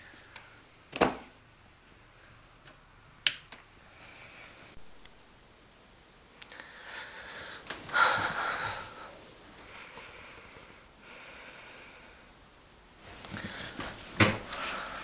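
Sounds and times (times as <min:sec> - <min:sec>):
man breathing heavily: 0:06.5 - 0:12.3, 0:13.2 - 0:15.0.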